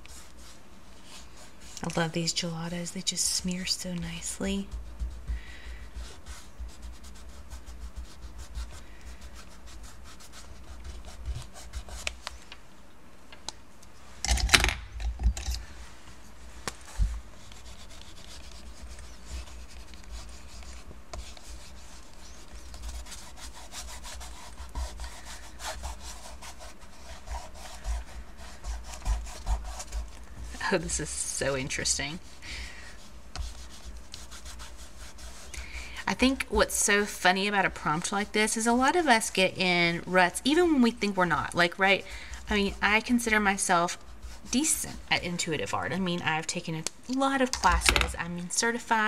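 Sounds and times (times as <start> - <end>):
crayon scratching on paper: 0.0 - 2.4, 3.6 - 12.2, 16.9 - 39.5, 40.5 - 45.6.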